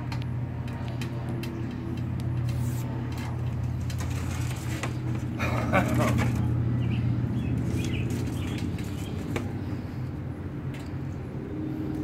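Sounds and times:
birds chirping: 0:05.4 - 0:10.0.

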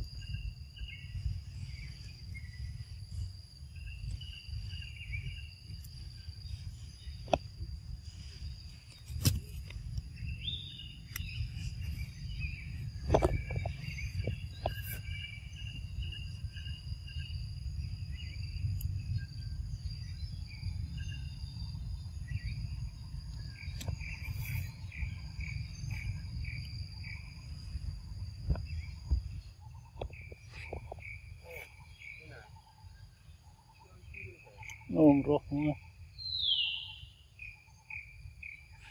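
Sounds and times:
high-pitched insect drone: 0:00.0 - 0:38.9
short chirping calls: 0:08.9 - 0:17.4, 0:18.1 - 0:38.9.

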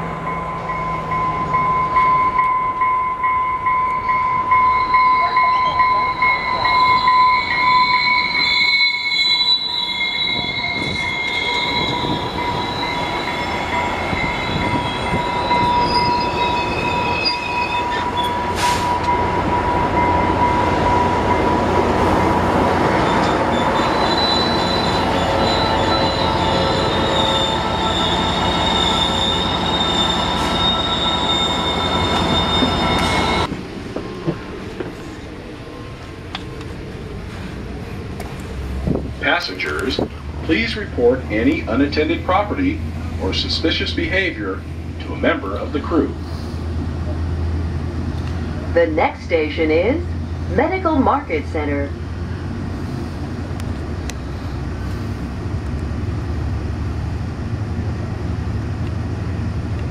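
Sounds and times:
train running gear rumble: 0:00.0 - 0:59.9
train wheel and brake squeal: 0:00.3 - 0:21.5, 0:22.9 - 0:33.5.

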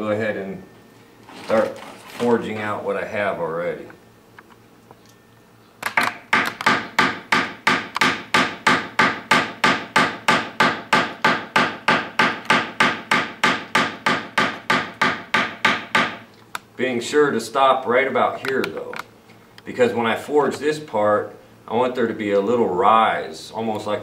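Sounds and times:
small hammer striking wire on steel: 0:06.0 - 0:16.2.

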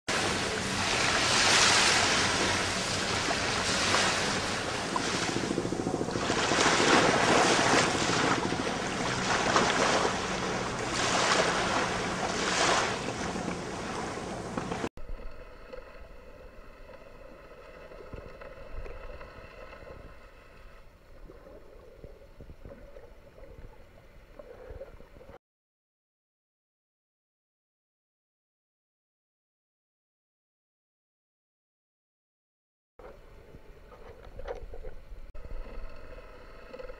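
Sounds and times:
sea waves rushing: 0:00.1 - 0:14.9
faint steady hum: 0:00.1 - 0:25.4
wind: 0:00.1 - 0:25.4, 0:33.0 - 0:36.9.

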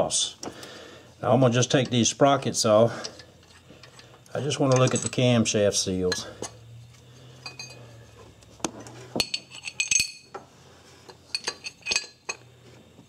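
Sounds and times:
low steady hum: 0:00.0 - 0:13.0
metal tools and parts clinking: 0:02.9 - 0:06.6, 0:07.4 - 0:08.1, 0:08.8 - 0:10.4, 0:11.1 - 0:12.5.

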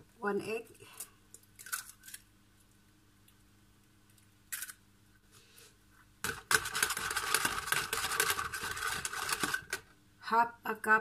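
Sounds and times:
whisk beating in plastic container: 0:06.2 - 0:09.8.

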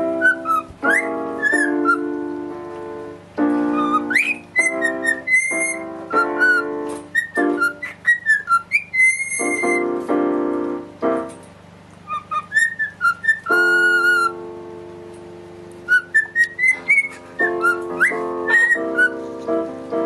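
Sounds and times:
cockatiel whistling chirps: 0:00.0 - 0:02.2, 0:03.6 - 0:09.9, 0:12.0 - 0:14.4, 0:15.8 - 0:19.2
piano chords: 0:00.0 - 0:20.0.

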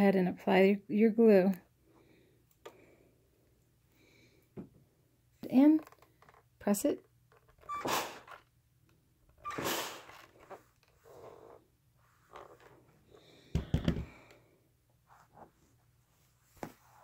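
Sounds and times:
steam iron hissing: 0:07.8 - 0:08.4, 0:09.5 - 0:10.2
fabric handling noises: 0:15.0 - 0:17.0.

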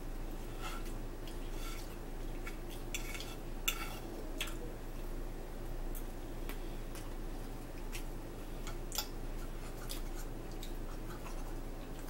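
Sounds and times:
steady low hum: 0:00.0 - 0:12.0
fork scraping on plate: 0:00.5 - 0:00.9, 0:01.5 - 0:02.0, 0:02.9 - 0:04.1.

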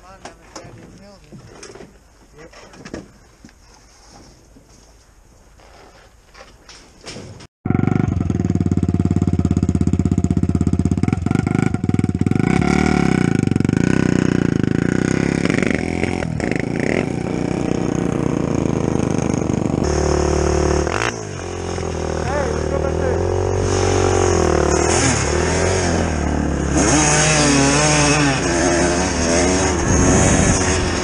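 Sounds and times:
dirt bike engine revving: 0:07.6 - 0:31.0.

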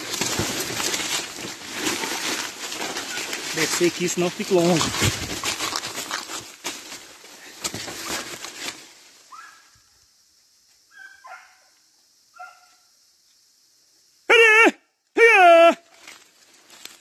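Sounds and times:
leaves crunching underfoot: 0:00.0 - 0:09.6, 0:15.8 - 0:17.0
distant dogs barking: 0:10.9 - 0:11.7, 0:12.3 - 0:12.8.

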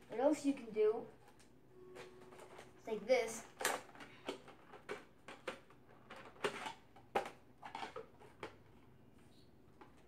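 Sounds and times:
plastic parts clicking and clacking: 0:03.3 - 0:08.8.

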